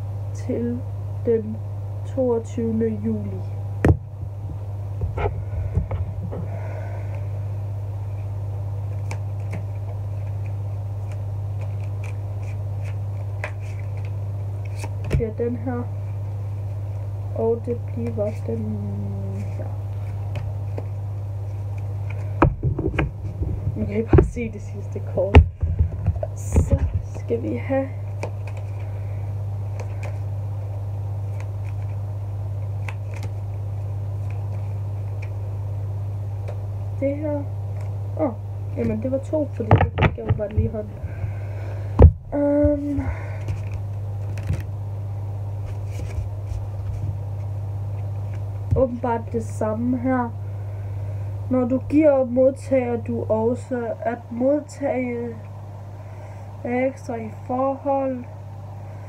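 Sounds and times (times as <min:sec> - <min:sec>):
low hum: 0:00.0 - 0:59.0
cards shuffling: 0:08.9 - 0:15.3, 0:19.3 - 0:23.8, 0:28.1 - 0:29.0, 0:29.6 - 0:32.0, 0:32.6 - 0:35.4, 0:42.7 - 0:44.7, 0:45.6 - 0:48.6.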